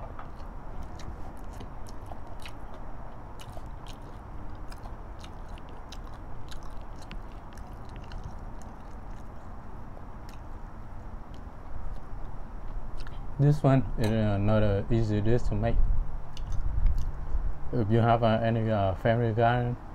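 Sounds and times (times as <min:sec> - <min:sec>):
low background rumble: 0:00.0 - 0:19.9
person chewing: 0:00.2 - 0:13.3, 0:16.3 - 0:17.2.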